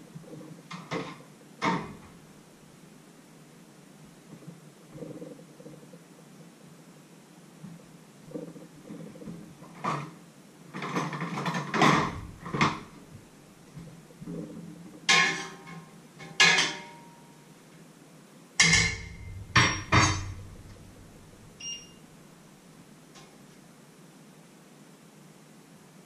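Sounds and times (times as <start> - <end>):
metal pots and utensils clattering: 10.8 - 13.0, 15.1 - 17.0, 18.6 - 21.7.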